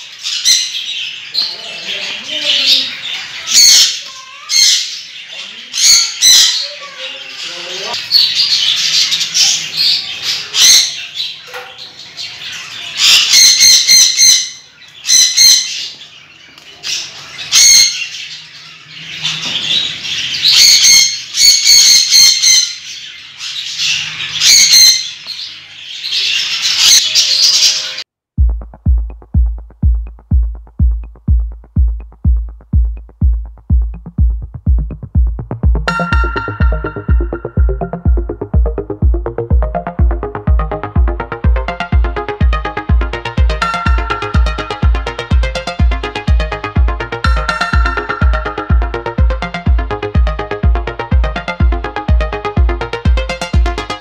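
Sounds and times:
parrots chirping: 0.0 - 28.0
parrots shrieking: 0.2 - 11.4, 12.2 - 16.0, 16.8 - 25.2
electronic music with kick drum: 28.4 - 54.0.

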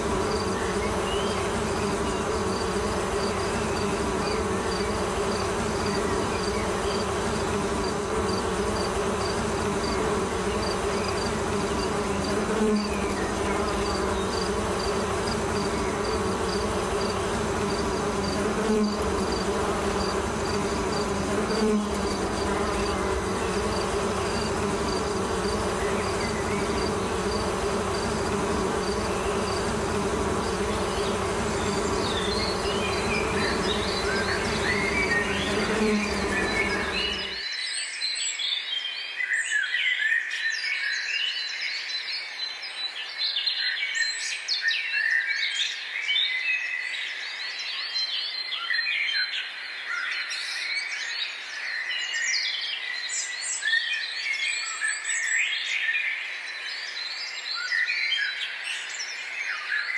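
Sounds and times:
insect-like buzzing drone: 0.0 - 37.5.

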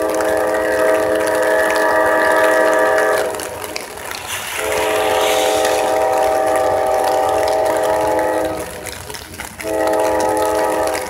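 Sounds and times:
locomotive air horn blast: 0.0 - 8.8, 9.6 - 11.0.

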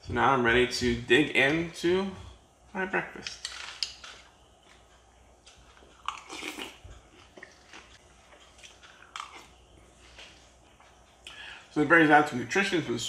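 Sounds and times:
person chewing: 3.3 - 11.4.

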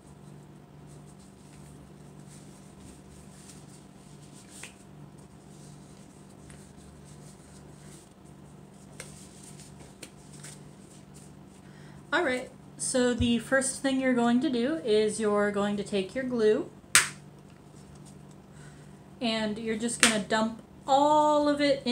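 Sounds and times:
plastic gloves crinkling: 0.0 - 11.7
plastic gloves snapping: 16.9 - 17.2.

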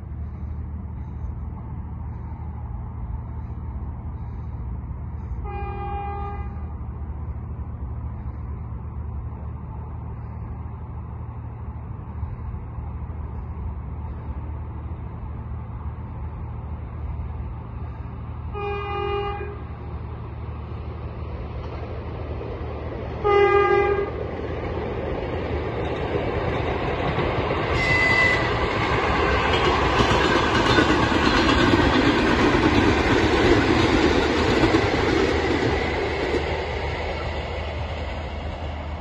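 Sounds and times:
train low rumble: 0.0 - 39.0
train horn blasts: 5.3 - 6.8, 18.5 - 19.8, 23.2 - 24.2, 27.7 - 28.6.

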